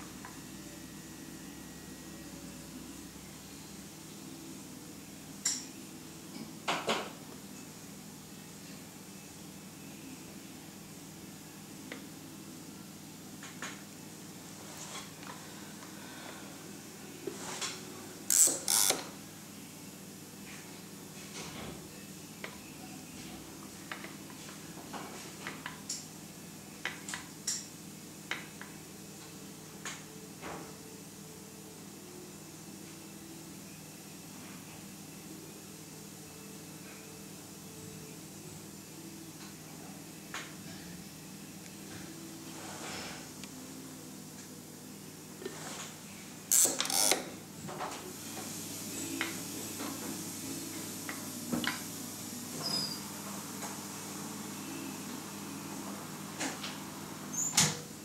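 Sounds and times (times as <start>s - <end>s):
steady low hum: 0.0s - 18.3s
low steady hum: 0.0s - 57.3s.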